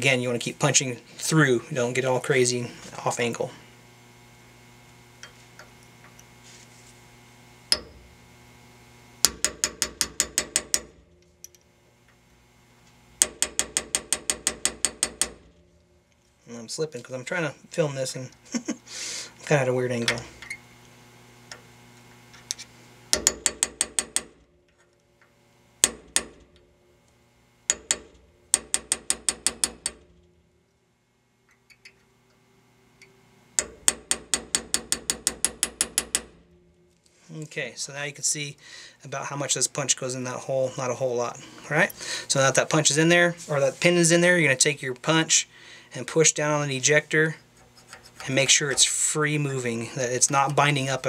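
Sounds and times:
hammer tapping metal punch: 7.7 - 8.0, 9.2 - 11.6, 23.1 - 24.4, 27.7 - 30.0, 33.0 - 36.4.

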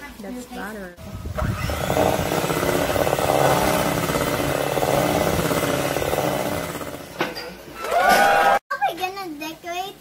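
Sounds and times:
electric hand mixer running: 1.0 - 7.2.

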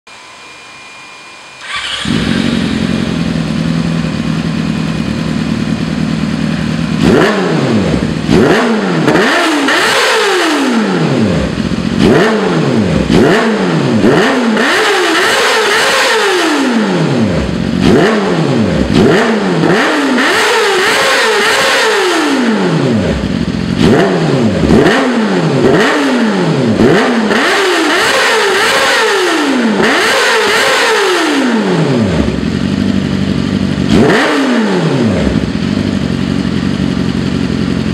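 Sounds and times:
motorcycle engine idling: 1.6 - 14.7, 16.6 - 20.5, 22.0 - 27.4, 31.6 - 37.9
motorcycle engine revving: 1.6 - 37.9.

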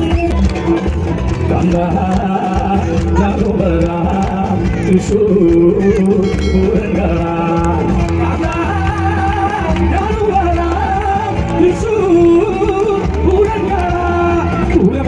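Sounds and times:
backing track with bass line: 0.0 - 15.0
person singing into a microphone: 0.0 - 15.0.

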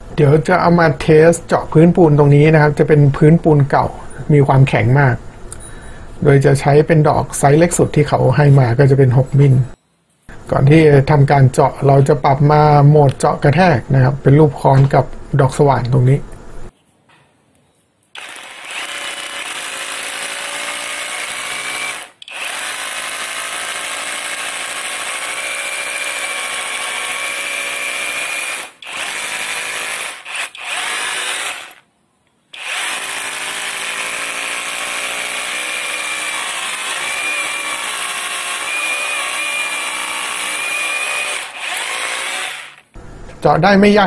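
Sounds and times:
rotary hammer drilling concrete: 18.2 - 31.8, 32.6 - 43.0.

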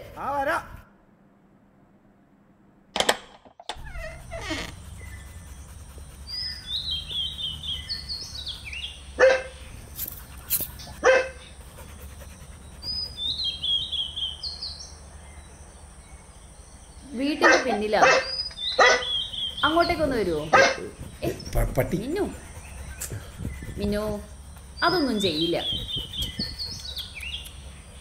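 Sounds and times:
dog barking: 9.2 - 9.6, 11.0 - 11.5, 17.4 - 19.8, 20.4 - 21.4.

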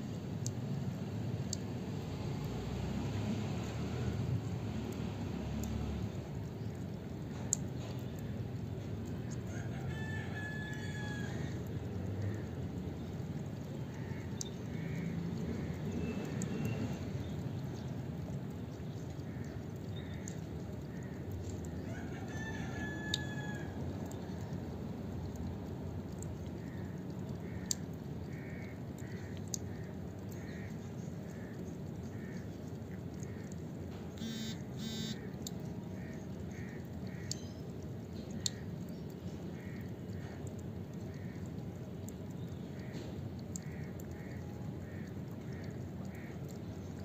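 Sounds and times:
outdoor background noise: 0.0 - 47.0
water dripping on concrete: 0.0 - 47.0
harsh buzzy calls: 34.2 - 35.3.

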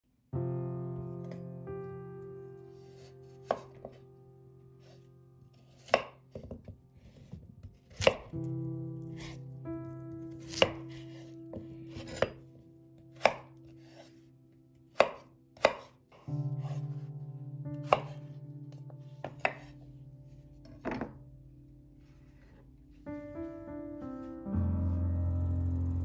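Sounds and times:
knife chopping on wooden board: 3.0 - 4.0, 5.5 - 8.4, 10.4 - 11.2, 11.9 - 12.4, 13.1 - 14.1, 14.9 - 16.0, 17.8 - 18.2, 19.2 - 19.7.

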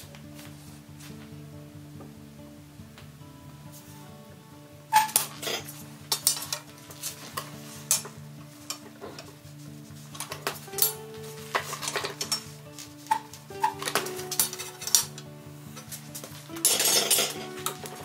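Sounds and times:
background music: 0.0 - 18.0
metal clinks and knocks: 5.0 - 9.3, 10.1 - 15.2, 15.8 - 18.0.

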